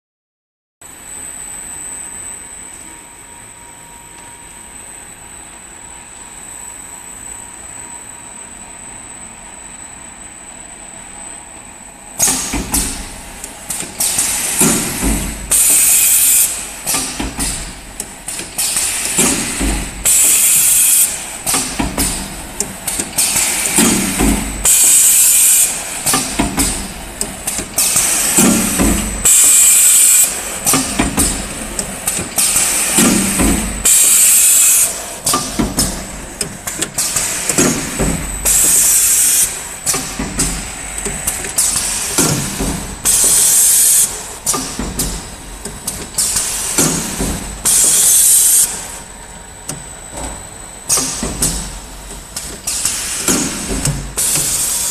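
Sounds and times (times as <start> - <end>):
mechanism clicking and clanking: 12.2 - 48.8, 49.6 - 54.9
compressed air hissing: 18.5 - 22.3, 22.9 - 35.5, 36.7 - 44.7, 52.6 - 54.9.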